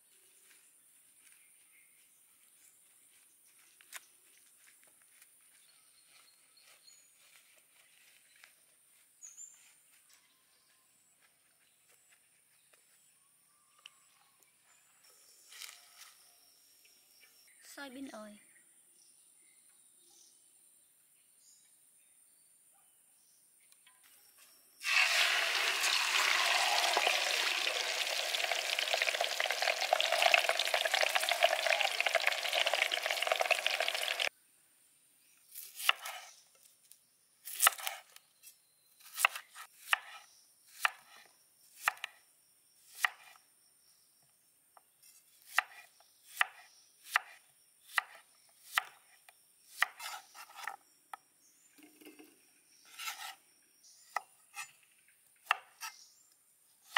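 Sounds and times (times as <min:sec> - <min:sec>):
hot oil sizzling in a wok: 0:24.8 - 0:34.3.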